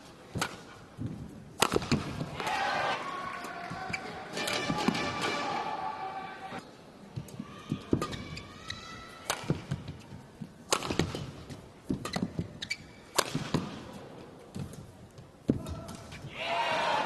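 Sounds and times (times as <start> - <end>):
rackets striking shuttlecock: 1.6 - 2.4, 9.2 - 10.0, 10.7 - 14.0.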